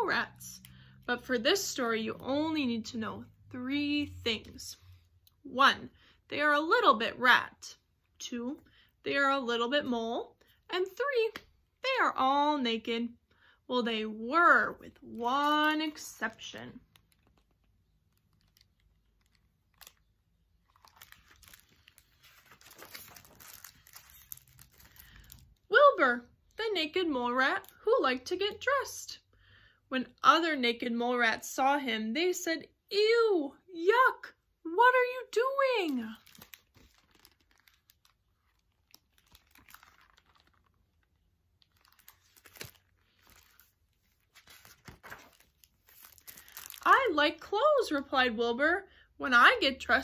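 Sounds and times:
book paper rustling: 0:15.7 - 0:25.4, 0:35.8 - 0:46.8.

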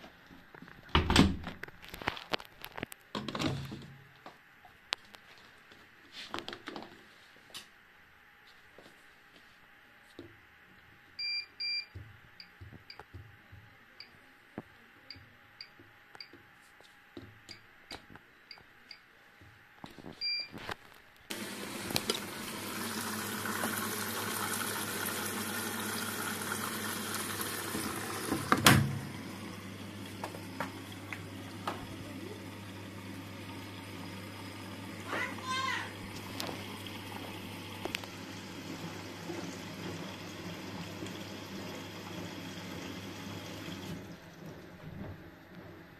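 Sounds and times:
washing machine panel beeps: 0:11.2 - 0:13.0, 0:20.2 - 0:20.6
water rushing into drum: 0:21.3 - 0:45.4.

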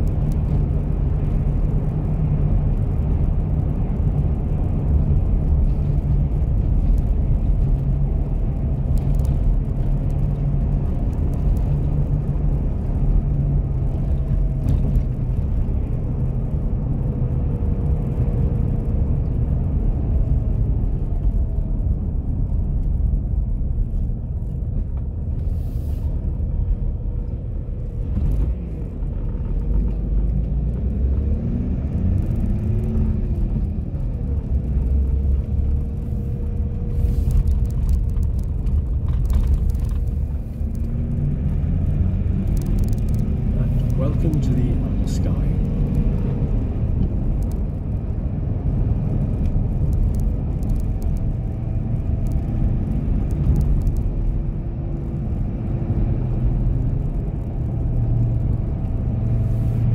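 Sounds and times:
car engine and tyre noise: 0:00.0 - 0:59.9.

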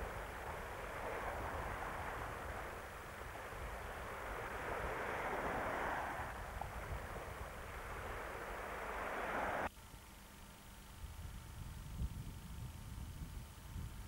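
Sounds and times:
small waves on shore: 0:00.0 - 0:09.7
wind buffeting microphone: 0:00.0 - 0:09.7, 0:11.0 - 0:14.0.

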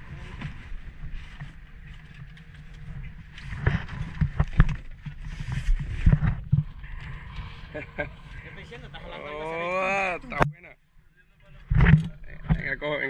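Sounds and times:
wind rumble: 0:00.0 - 0:10.5
sea: 0:00.0 - 0:13.0
sharp knocks and thumps: 0:11.7 - 0:12.7.

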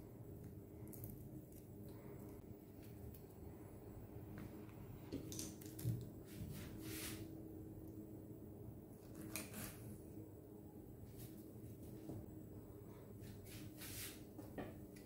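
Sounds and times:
charred skin being peeled: 0:00.0 - 0:03.6, 0:05.1 - 0:06.3, 0:08.9 - 0:10.0
low steady hum: 0:00.0 - 0:15.0.

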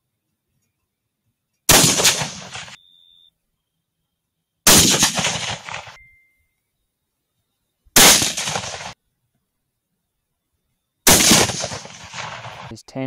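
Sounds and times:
rifle shots echoing: 0:01.7 - 0:02.8, 0:04.7 - 0:06.0, 0:08.0 - 0:09.0, 0:11.1 - 0:12.7.

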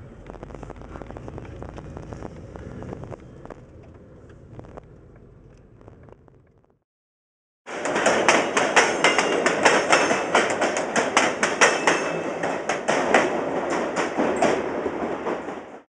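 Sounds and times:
train wheels clattering over rails: 0:07.7 - 0:15.8.

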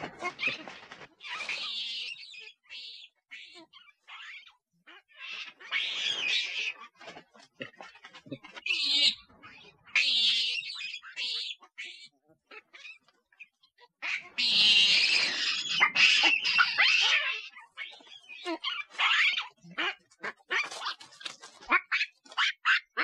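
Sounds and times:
monkeys squealing and chirping: 0:00.0 - 0:13.1, 0:14.0 - 0:23.0
monkey harsh screech: 0:14.4 - 0:17.5.

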